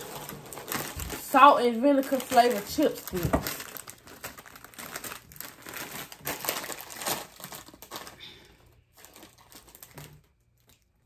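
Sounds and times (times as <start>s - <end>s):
crisp packet crinkling: 0.0s - 11.0s.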